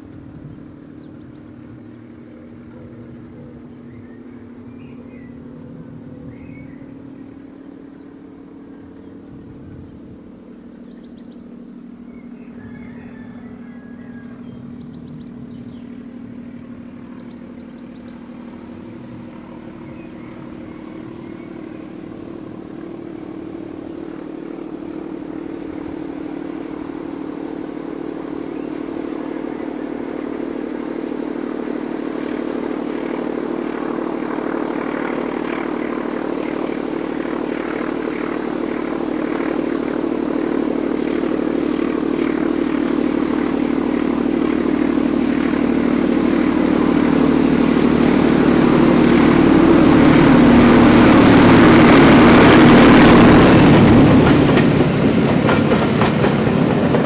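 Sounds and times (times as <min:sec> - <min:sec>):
birds chirping: 0:00.0 - 0:39.9
diesel locomotive engine droning: 0:00.0 - 0:57.0.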